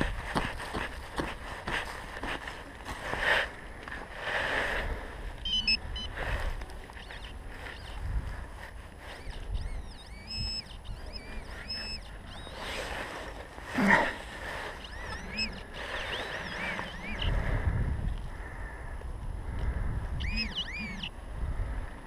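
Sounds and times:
leaves and soil rustling and scraping: 0.0s - 9.8s, 10.9s - 17.5s
high chirping: 5.4s - 6.2s, 7.0s - 8.1s, 9.1s - 12.8s, 14.8s - 17.4s, 20.2s - 21.2s.

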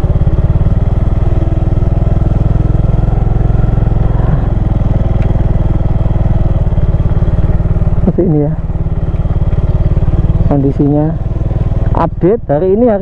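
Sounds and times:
motor scooter engine putter: 4.5s - 5.7s, 8.8s - 12.2s.

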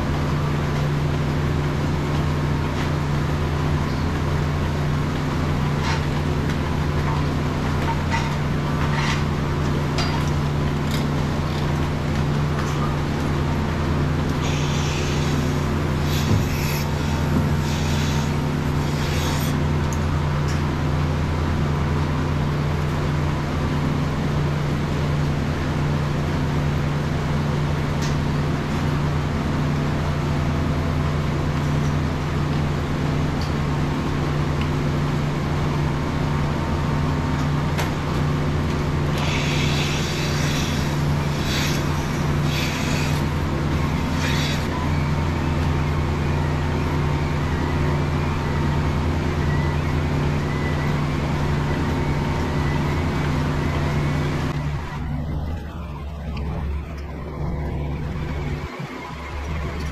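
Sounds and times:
milking machine hum: 0.0s - 59.9s
airy hissing: 14.4s - 19.6s.

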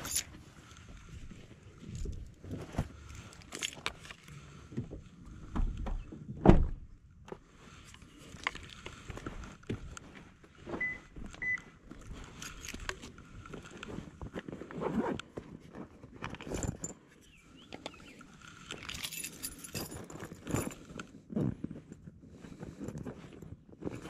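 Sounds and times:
loud thump: 6.4s - 6.8s.

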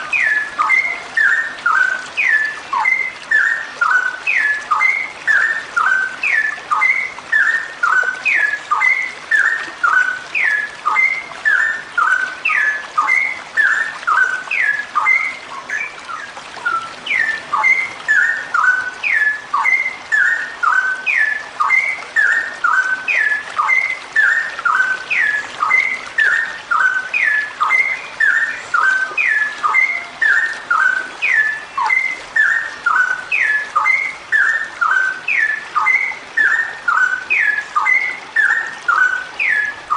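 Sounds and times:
bird singing bubbly whistles: 0.0s - 39.9s.

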